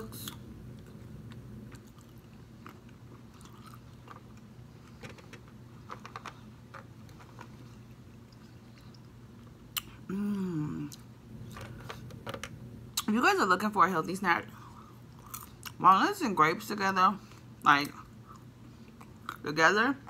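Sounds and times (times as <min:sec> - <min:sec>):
chewing grapes: 0:00.2 - 0:11.6, 0:14.5 - 0:15.8, 0:17.2 - 0:19.4
person humming: 0:10.1 - 0:11.0.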